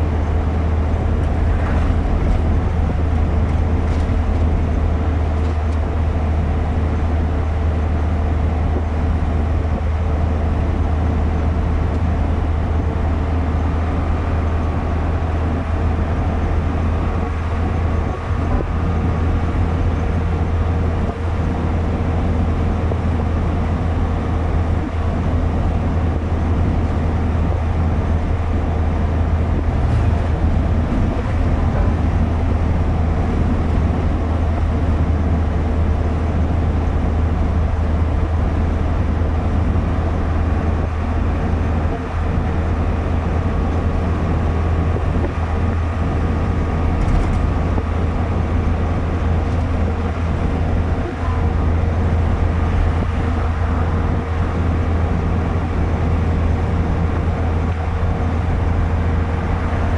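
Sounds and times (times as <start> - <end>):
car engine and tyre drone in cabin: 0.0 - 59.9.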